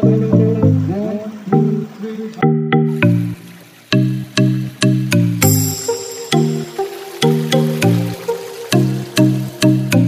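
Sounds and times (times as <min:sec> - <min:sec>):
melody of short pitched notes: 0:00.0 - 0:09.2.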